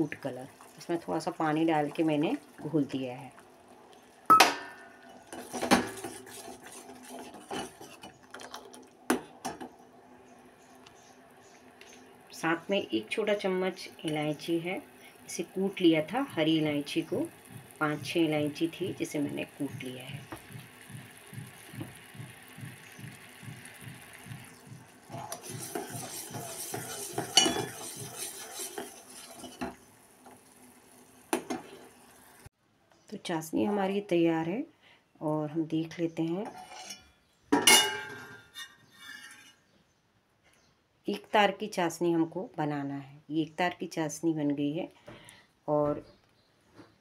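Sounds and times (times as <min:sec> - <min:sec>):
ladle scraping metal pot: 0:04.7 - 0:08.8, 0:25.0 - 0:29.8, 0:36.5 - 0:39.7.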